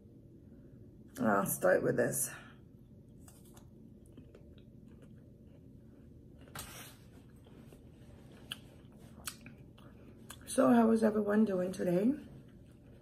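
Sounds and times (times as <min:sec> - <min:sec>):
faint chewing: 0:02.8 - 0:10.6, 0:12.2 - 0:13.0
small mouth clicks: 0:08.4 - 0:10.4.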